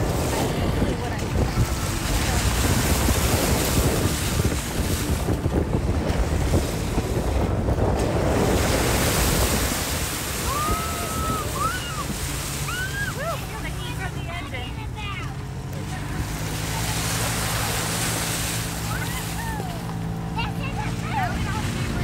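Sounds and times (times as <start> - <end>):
wind on microphone: 0.0 - 14.9
engine and tyre rumble: 0.0 - 22.0
tyre splashing through puddles: 8.0 - 22.0.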